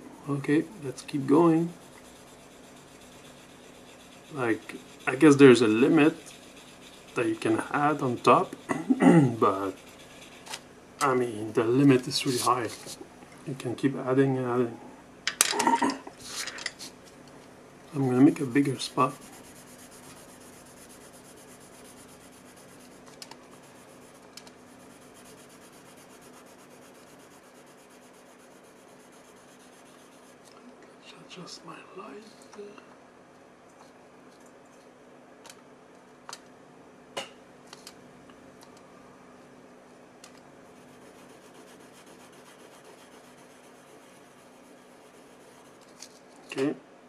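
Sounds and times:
steady low hum: 0.0s - 47.0s
pencil scratching on paper: 1.1s - 10.6s, 18.0s - 30.4s, 40.6s - 46.1s.

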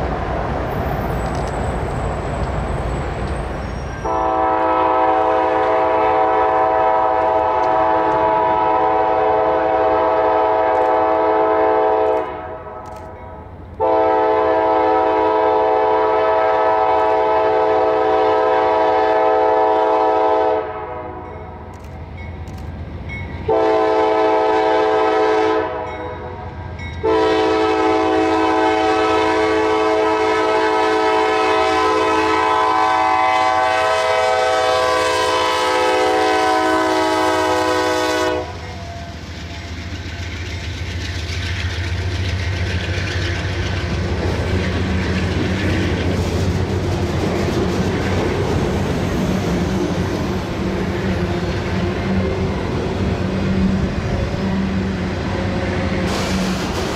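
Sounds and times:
locomotive air horn: 3.8s - 12.9s, 13.8s - 21.9s, 23.5s - 39.2s
freight cars rumbling and clattering: 38.6s - 56.9s.

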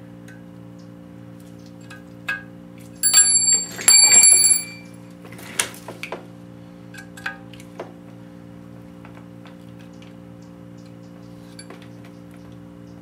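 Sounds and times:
steady low hum: 0.0s - 5.3s
ringing metallic clinks: 3.0s - 5.0s.

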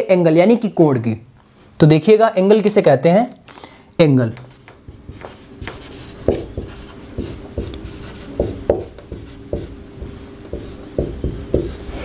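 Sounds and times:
marker pen writing on whiteboard: 4.3s - 12.0s.

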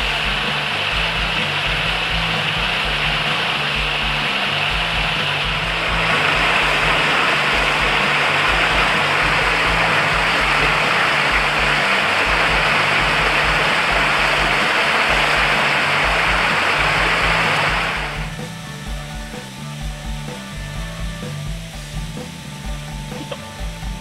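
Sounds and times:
water rushing over rocks: 0.0s - 18.3s
music with repeating bass line: 0.0s - 24.0s.

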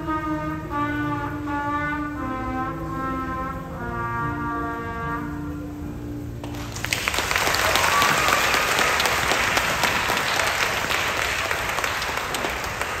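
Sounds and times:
trumpet note: 0.0s - 6.3s
audience applause: 6.4s - 13.0s.

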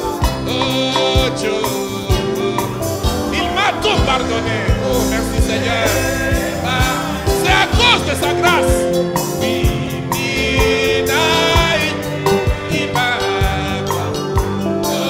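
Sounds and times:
gospel instrumental accompaniment: 0.0s - 15.0s
person singing: 0.0s - 15.0s
drum hits: 2.8s - 9.8s.

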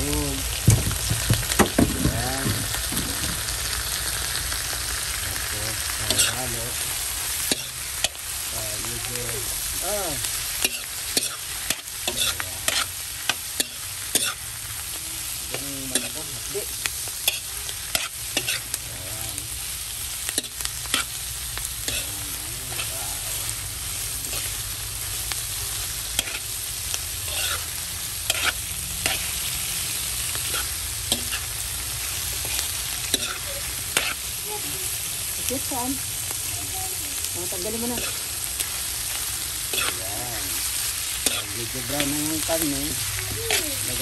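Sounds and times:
meat and onion sizzling in a pan: 0.0s - 44.0s
metal spoon scraping a pan: 6.0s - 6.5s, 7.4s - 8.2s, 10.6s - 14.5s, 17.1s - 18.8s, 20.3s - 21.2s, 21.8s - 23.2s, 26.1s - 26.5s, 27.2s - 34.3s, 37.7s - 38.3s, 39.5s - 42.8s.

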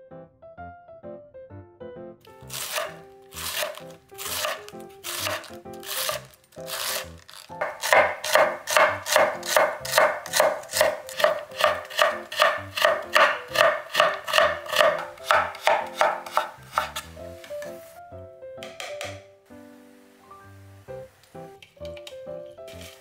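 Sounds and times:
knife chopping on wooden board: 2.4s - 17.7s.

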